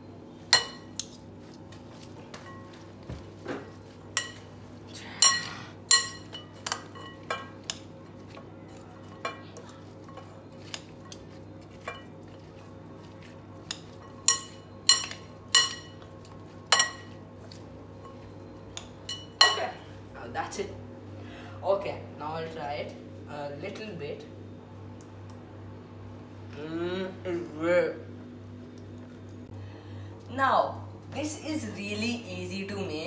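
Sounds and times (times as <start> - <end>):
spoon clinking against glass bowl: 5.2 - 7.8, 13.6 - 16.1.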